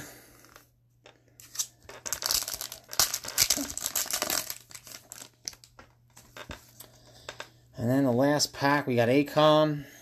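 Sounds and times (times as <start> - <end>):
foil wrapper crinkling: 1.4 - 5.9.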